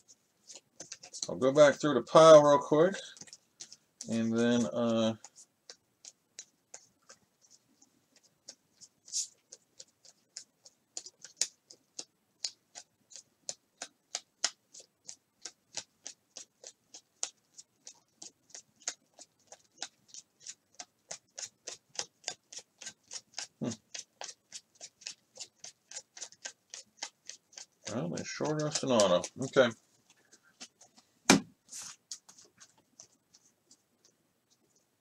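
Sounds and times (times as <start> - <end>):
soft thud: 31.3 - 31.5.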